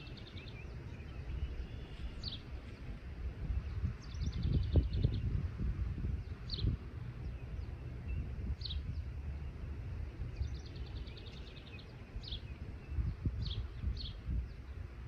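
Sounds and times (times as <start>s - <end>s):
bird trill: 0.0s - 2.5s, 10.3s - 14.6s
birds chirping: 0.0s - 15.0s
steady low rumble: 0.0s - 15.0s.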